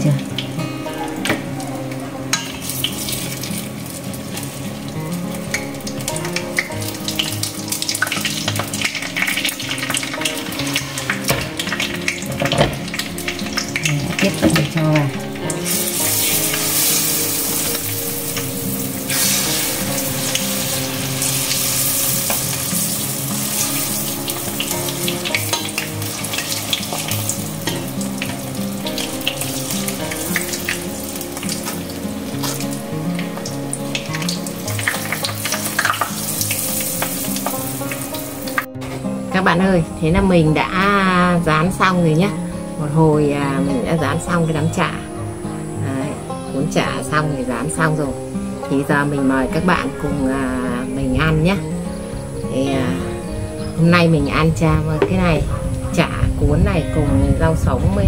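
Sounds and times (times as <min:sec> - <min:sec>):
food deep-frying in oil: 0:01.6 - 0:38.8.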